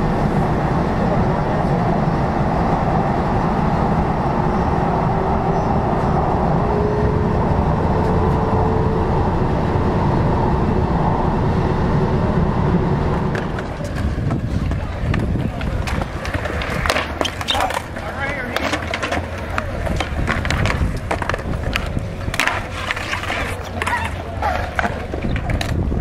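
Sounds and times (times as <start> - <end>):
train rumbling on board: 0.0 - 16.9.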